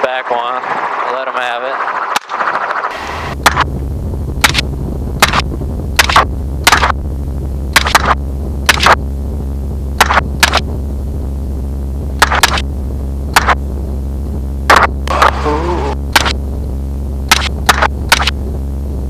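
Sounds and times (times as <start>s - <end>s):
helicopter drone: 0.0s - 19.0s
rifle shots: 6.0s - 7.0s.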